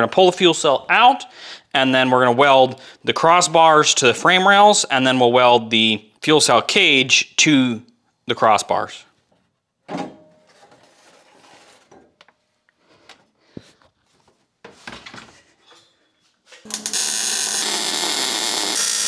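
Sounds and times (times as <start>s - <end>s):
welder arc crackling and humming: 16.6s - 19.0s.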